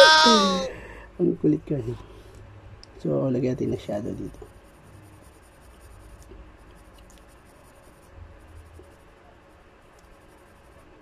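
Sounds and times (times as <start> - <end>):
pencil scratching on paper: 4.2 - 11.0.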